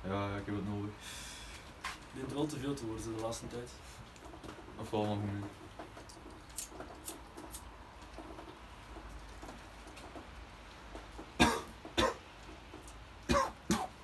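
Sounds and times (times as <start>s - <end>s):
man coughing: 11.4s - 12.2s, 13.3s - 14.0s.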